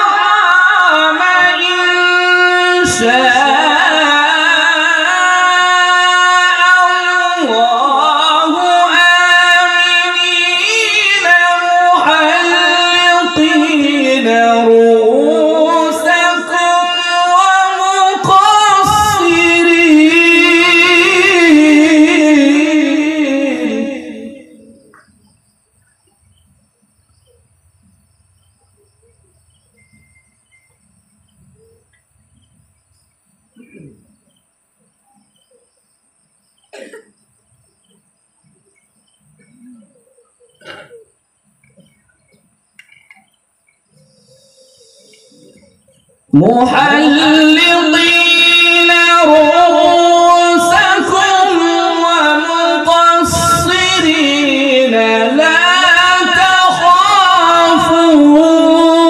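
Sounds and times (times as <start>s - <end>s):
man reciting melodically: 0.0s - 25.1s, 44.0s - 59.0s.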